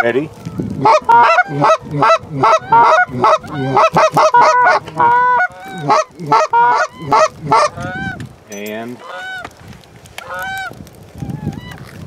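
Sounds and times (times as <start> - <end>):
goose calls honking and clucking: 0.0 - 8.2, 8.9 - 9.5, 10.2 - 10.7.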